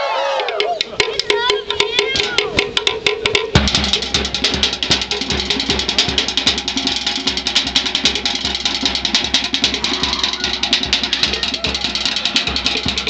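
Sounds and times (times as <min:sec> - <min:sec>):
fast drumming: 0:00.3 - 0:13.0
deep drum beat: 0:00.4 - 0:13.0.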